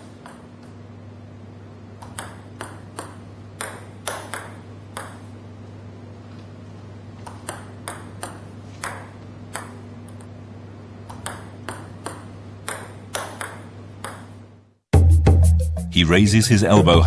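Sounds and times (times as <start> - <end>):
table tennis ball bouncing: 0.0 - 0.8, 2.0 - 5.4, 7.2 - 10.3, 11.0 - 14.5
steady low hum: 0.0 - 14.9.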